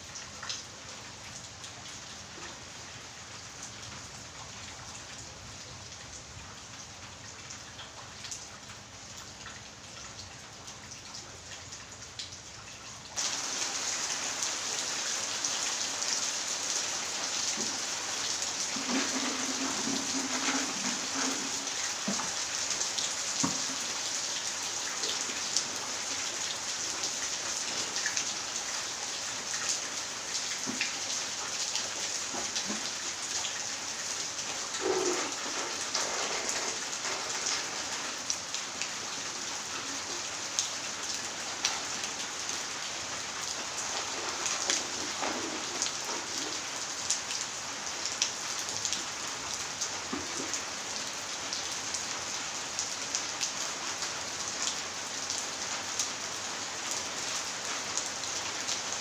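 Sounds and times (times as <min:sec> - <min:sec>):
rain hissing: 0:13.2 - 0:54.4.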